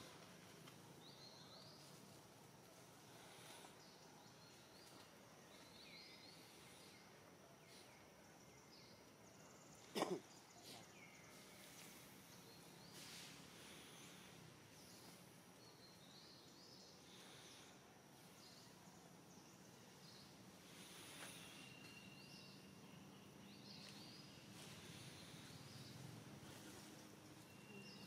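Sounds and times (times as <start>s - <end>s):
faint outdoor ambience: 0.0s - 28.0s
faint high chirps: 19.5s - 28.0s.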